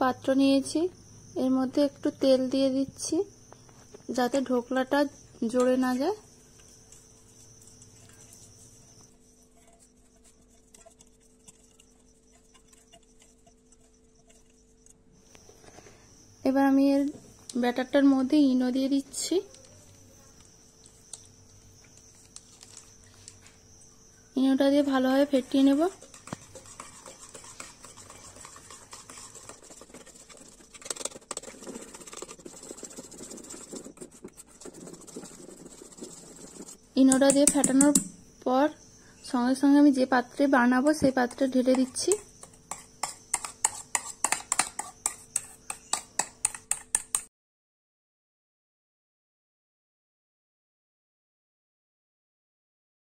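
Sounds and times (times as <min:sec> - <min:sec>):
faint steady hum: 0:00.0 - 0:47.2
fingers ticking on steel bowl: 0:09.6 - 0:15.0, 0:25.5 - 0:33.9, 0:35.2 - 0:38.1, 0:41.7 - 0:47.3
wet batter slapping: 0:25.5 - 0:38.0.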